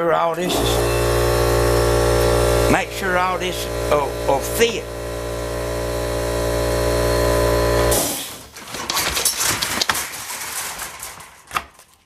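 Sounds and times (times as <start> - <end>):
machine hum: 0.4 - 8.1
wooden blocks clicking and knocking: 8.6 - 12.0.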